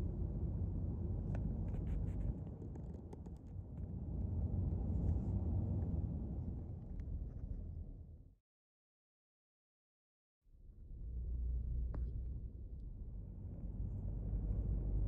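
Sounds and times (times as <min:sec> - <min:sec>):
vehicle rumbling on road: 0:10.8 - 0:15.0.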